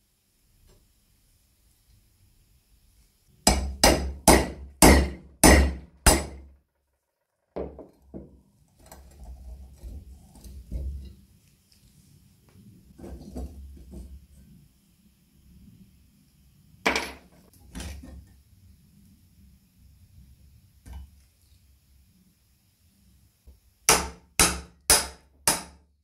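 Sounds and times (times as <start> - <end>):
hammer striking metal: 3.5 - 6.5, 23.9 - 25.8.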